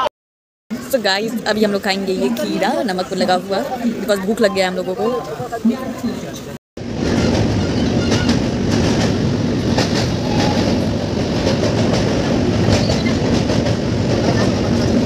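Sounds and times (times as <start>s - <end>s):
train wheels rumbling on rails: 6.8s - 15.0s
wheels clacking on rails: 6.9s - 15.0s.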